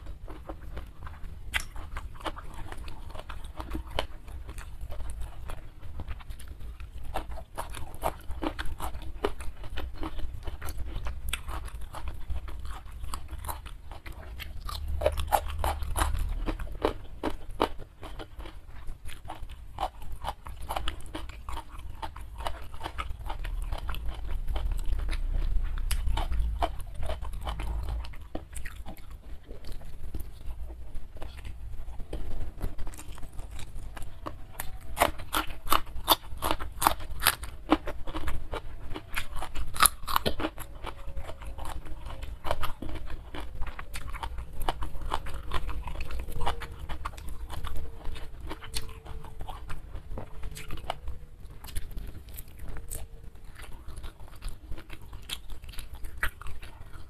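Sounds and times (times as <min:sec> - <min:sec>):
person chewing crunchy food: 0:00.0 - 0:57.0
low rumble: 0:23.0 - 0:35.3.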